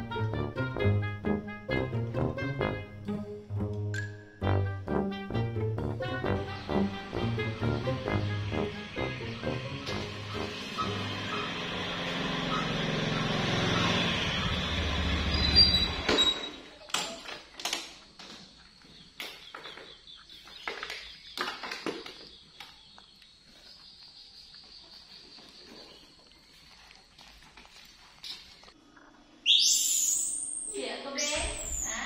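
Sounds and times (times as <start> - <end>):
motor scooter engine running: 8.4 - 16.1.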